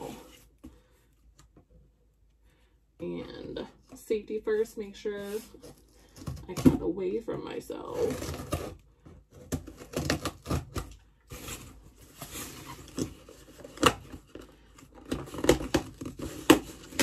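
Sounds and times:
cardboard rustling: 8.0s - 17.0s
scissors cutting packing tape: 9.4s - 11.7s, 15.0s - 17.0s.

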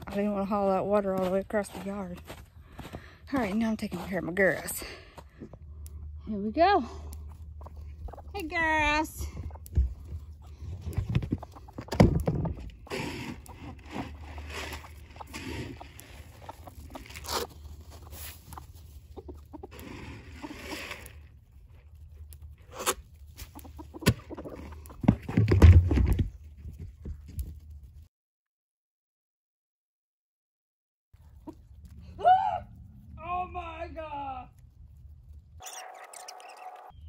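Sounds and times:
chickens clucking: 7.1s - 21.2s, 22.7s - 25.4s, 35.6s - 37.0s.

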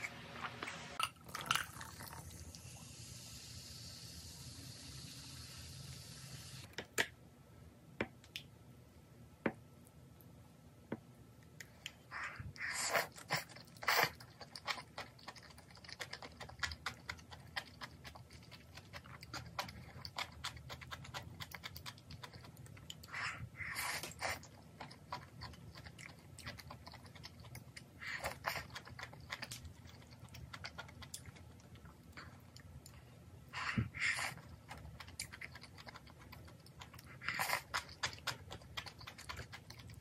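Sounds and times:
chewing noodles: 11.7s - 40.0s.

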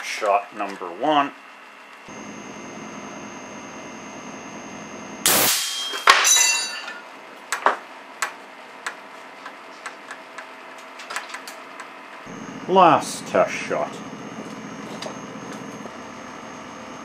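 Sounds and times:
air cannon blast: 5.2s - 5.8s
metallic clang with ringing: 5.4s - 7.0s
small clicks and rattles: 9.4s - 11.9s.

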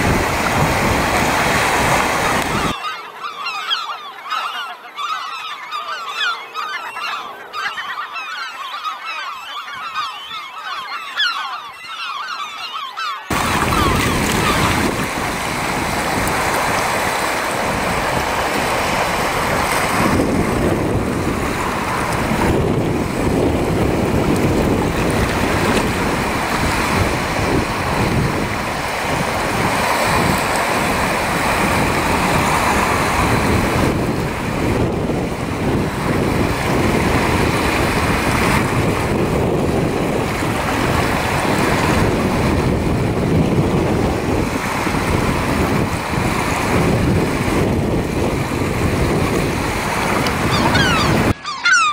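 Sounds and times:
surf breaking in shallow water: 0.0s - 2.8s, 13.3s - 51.4s
wind noise on microphone: 0.0s - 2.8s, 13.3s - 51.5s.

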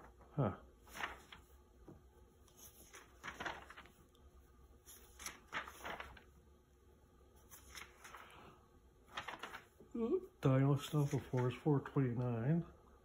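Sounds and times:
magazine pages rustling: 0.8s - 1.6s, 2.4s - 4.2s, 4.8s - 6.4s, 7.4s - 9.9s, 10.7s - 11.7s.

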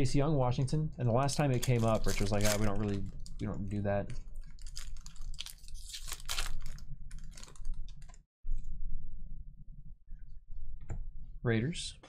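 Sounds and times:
low hum: 0.0s - 12.0s
foil wrapper crinkling: 1.3s - 3.8s, 4.4s - 8.1s.

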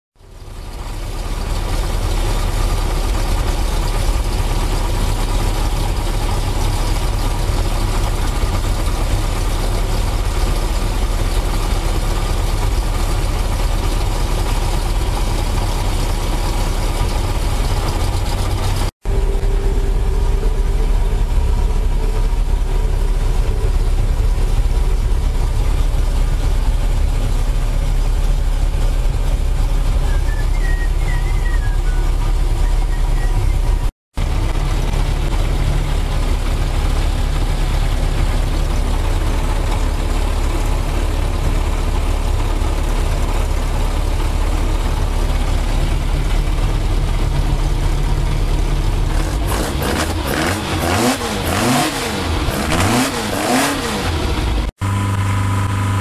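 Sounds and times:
four-cylinder engine running: 0.2s - 56.0s.

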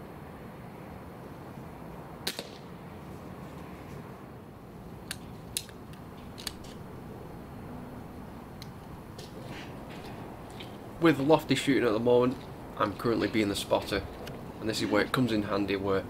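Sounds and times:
air rifle action clicking: 5.0s - 6.8s.

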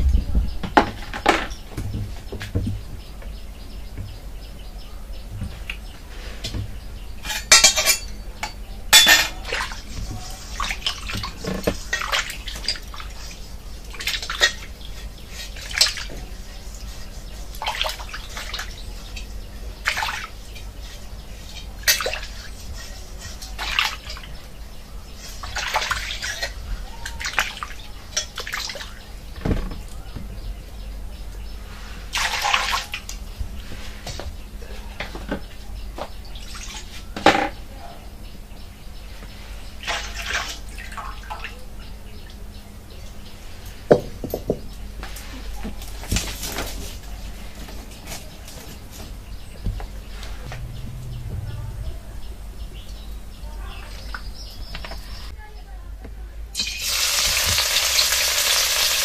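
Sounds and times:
water splashing in a wok: 32.1s - 32.9s, 56.6s - 59.0s
low hum: 49.2s - 55.3s.

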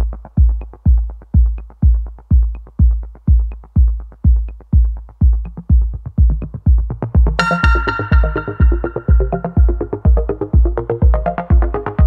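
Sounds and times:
heavy kick drum beat: 0.0s - 12.0s
electronic dance music: 7.4s - 10.7s.

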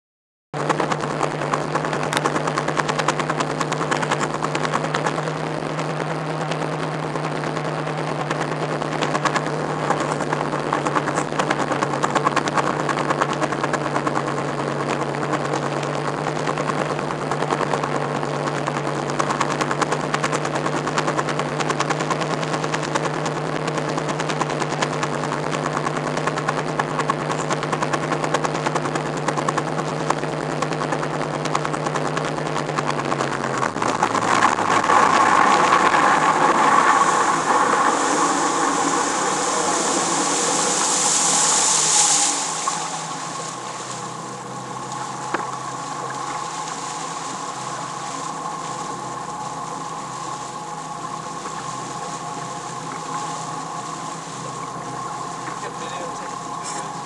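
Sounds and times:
motorboat engine droning: 0.6s - 57.0s
wind buffeting microphone: 0.6s - 57.0s.

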